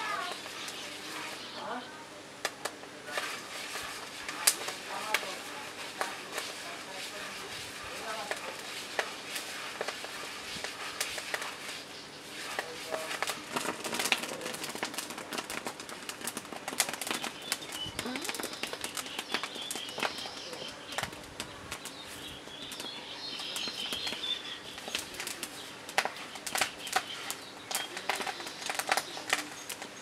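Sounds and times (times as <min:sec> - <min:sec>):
sharp crackles and clicks: 0:00.0 - 0:01.8, 0:02.4 - 0:30.0
bird chirping: 0:00.0 - 0:02.0, 0:17.1 - 0:30.0.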